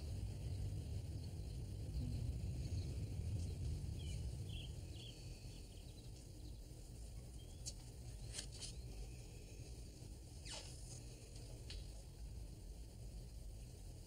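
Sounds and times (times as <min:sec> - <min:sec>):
steady low hum: 0:00.0 - 0:14.0
faint bird chirps: 0:00.4 - 0:09.0.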